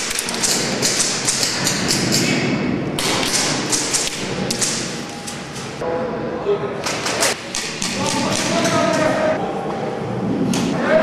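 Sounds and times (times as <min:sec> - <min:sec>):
airsoft guns firing: 0:00.0 - 0:02.4, 0:03.0 - 0:05.0.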